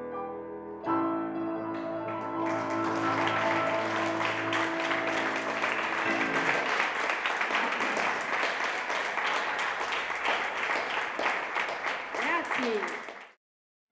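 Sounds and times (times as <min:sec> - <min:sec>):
piano chord ringing out: 0:00.0 - 0:06.7
audience applause: 0:02.2 - 0:13.4.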